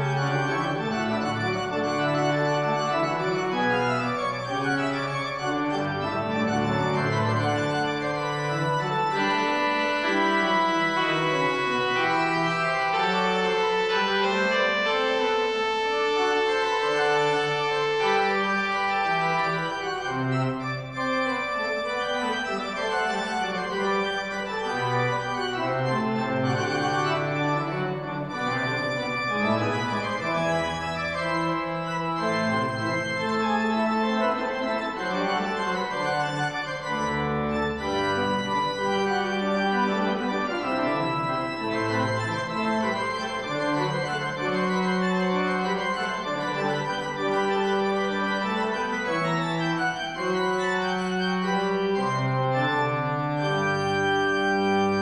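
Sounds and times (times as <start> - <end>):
deep organ pedal notes: 0.0 - 55.0
pipe organ chords: 0.0 - 55.0.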